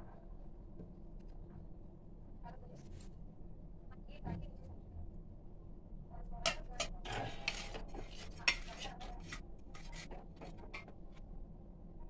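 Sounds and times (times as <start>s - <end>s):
steel plate and bowl clinking: 7.1s - 10.1s.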